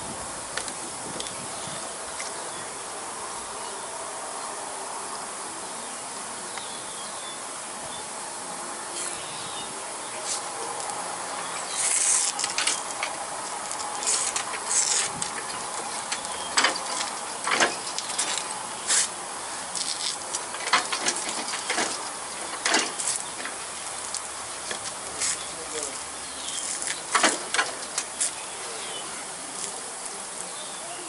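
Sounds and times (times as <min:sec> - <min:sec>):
insects chirping: 0:01.2 - 0:31.0
foam crackling clicks: 0:11.8 - 0:19.1, 0:19.7 - 0:26.0
squeeze bottle hissing spurts: 0:18.9 - 0:19.2.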